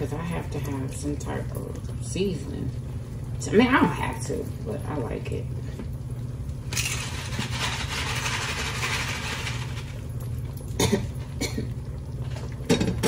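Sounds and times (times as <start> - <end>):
steady low hum: 0.0 - 13.0
seasoning shaker rustling hiss: 6.8 - 10.0.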